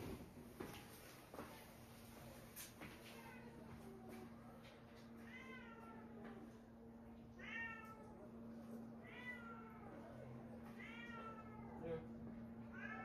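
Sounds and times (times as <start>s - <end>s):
cat meowing: 7.4s - 8.2s, 9.0s - 10.0s, 10.7s - 11.8s, 12.7s - 13.0s.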